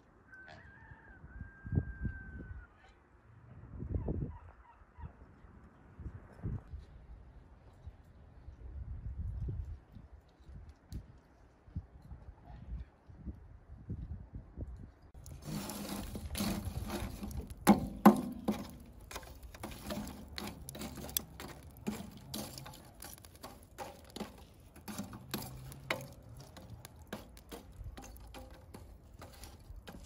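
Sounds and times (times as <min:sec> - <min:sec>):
charcoal raked with metal tongs: 0:15.2 - 0:30.0.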